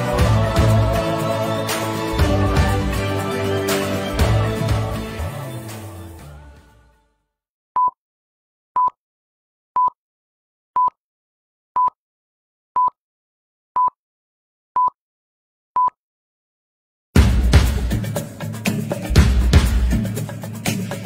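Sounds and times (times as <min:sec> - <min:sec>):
music: 0:00.0 - 0:07.2, 0:17.2 - 0:21.0.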